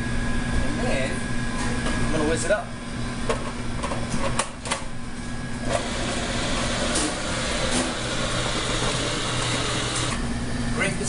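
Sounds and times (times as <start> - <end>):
food processor motor running: 5.6 - 10.2.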